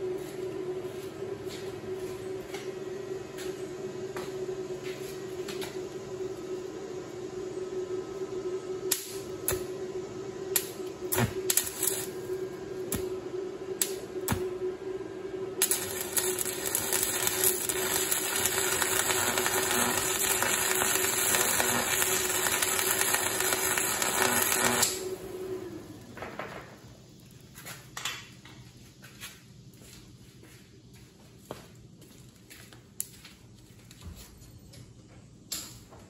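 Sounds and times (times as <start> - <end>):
arc welder crackling: 8.8 - 14.7, 15.5 - 26.1.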